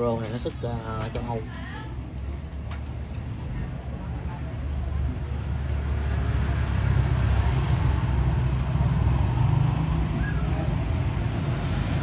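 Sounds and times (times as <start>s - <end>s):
road traffic rumble: 0.0s - 12.0s.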